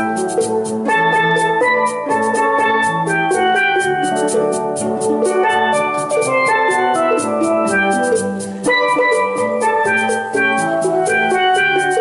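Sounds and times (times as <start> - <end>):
steel pan melody and chords: 0.0 - 12.0.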